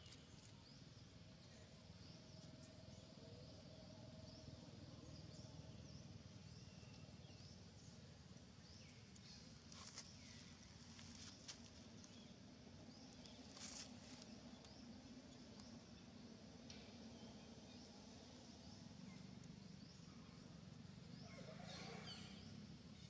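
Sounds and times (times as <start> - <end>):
soft rustles: 9.7 - 12.2, 13.3 - 14.3.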